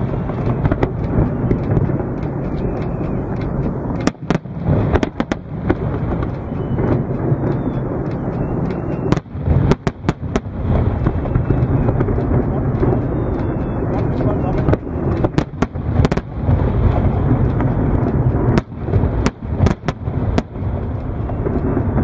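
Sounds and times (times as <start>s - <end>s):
fireworks booming: 0.0s - 22.0s
fireworks cracking: 0.0s - 22.0s.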